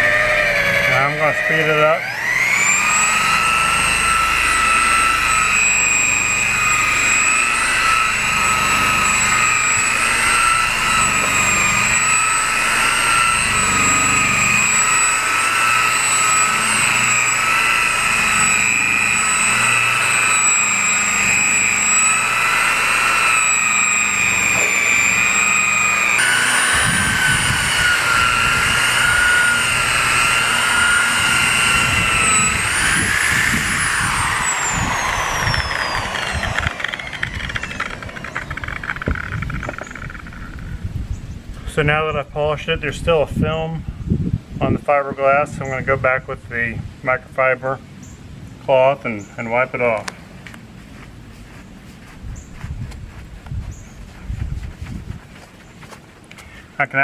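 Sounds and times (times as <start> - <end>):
electric polisher motor whine: 0.0 - 41.8.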